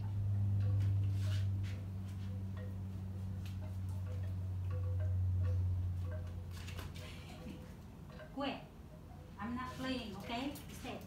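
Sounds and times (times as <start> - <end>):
steady low hum: 0.0 - 11.0
wind chimes tinkling: 2.3 - 10.8.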